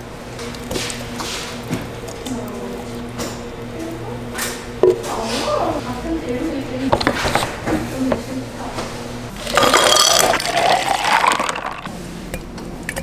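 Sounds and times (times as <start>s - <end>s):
low steady hum: 0.0s - 13.0s
blender motor whining: 9.3s - 11.9s.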